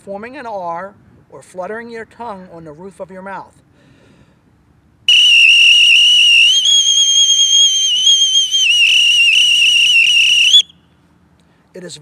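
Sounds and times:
bosun's pipe trill whistle: 5.1s - 10.8s.

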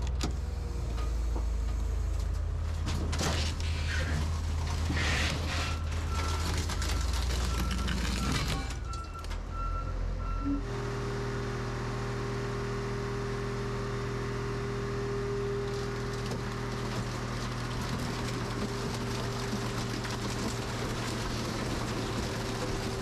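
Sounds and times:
heavy engine running: 0.0s - 23.0s
backup alarm beeping: 7.5s - 10.6s.

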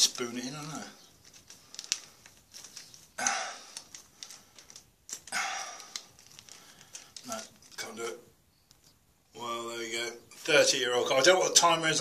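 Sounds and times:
foil packet crinkling: 0.0s - 7.9s.

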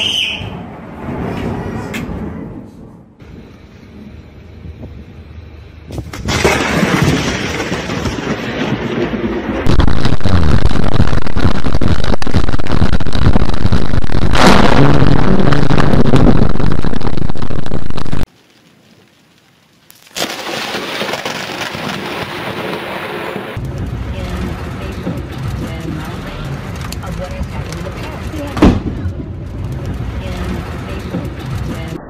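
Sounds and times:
cracking thunder: 5.9s - 18.3s, 20.2s - 31.7s.

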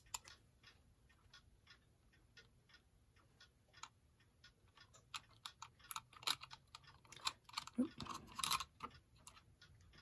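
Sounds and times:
small brass parts clicking: 4.7s - 10.0s.

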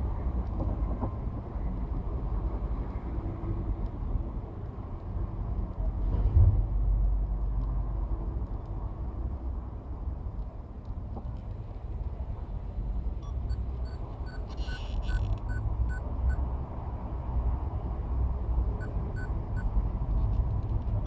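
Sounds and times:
faint high-pitched beeps: 13.2s - 16.4s.

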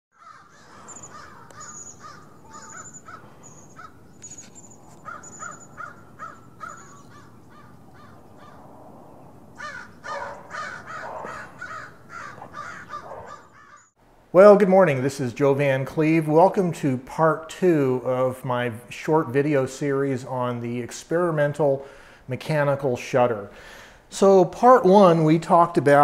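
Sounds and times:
crows cawing: 0.1s - 4.2s, 5.0s - 8.7s, 9.5s - 14.0s.

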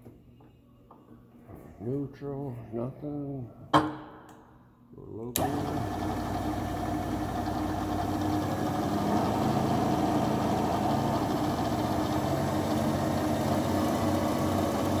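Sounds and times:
milling machine humming: 5.4s - 15.0s.

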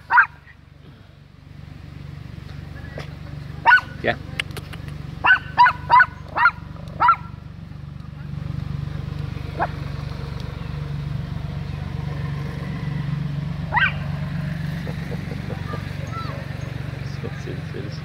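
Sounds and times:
steady low rumble: 0.0s - 18.0s
dog barking: 0.1s - 0.4s, 3.6s - 4.0s, 5.2s - 7.4s, 13.7s - 14.0s.

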